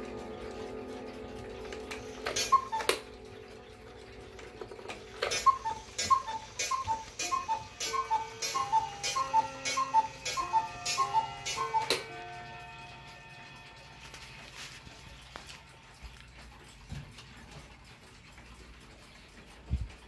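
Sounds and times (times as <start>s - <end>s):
cuckoo clock calling: 0.0s - 16.7s
clock mechanism click: 0.1s - 12.8s.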